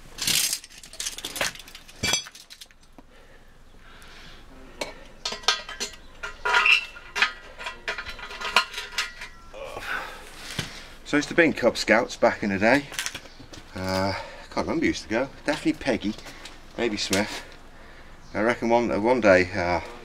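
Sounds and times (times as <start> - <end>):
steel pieces clinking: 0.2 - 2.9, 4.8 - 9.6.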